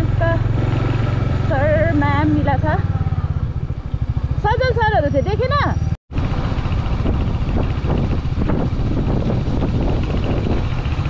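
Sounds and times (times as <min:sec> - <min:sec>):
motorcycle engine running: 0:00.0 - 0:11.0
wind rushing over microphone: 0:06.2 - 0:11.0.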